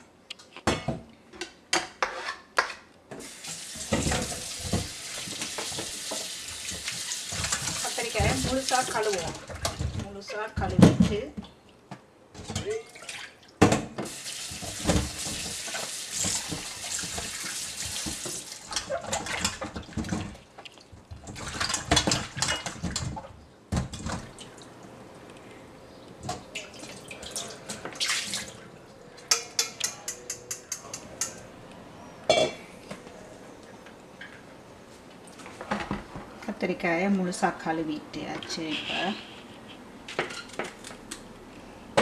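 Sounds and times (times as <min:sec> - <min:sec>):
tap water running into bowl: 0:03.2 - 0:09.8, 0:14.0 - 0:20.2.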